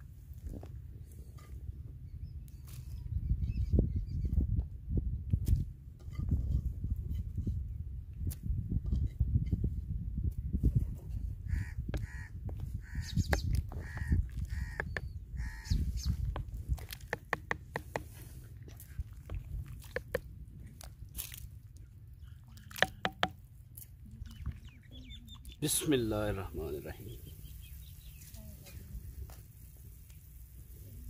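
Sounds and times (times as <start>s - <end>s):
bird calling: 11.5s - 16.4s, 24.3s - 26.0s, 26.9s - 28.4s
wooden ladle stirring in clay pot: 11.9s - 21.8s, 22.5s - 23.4s.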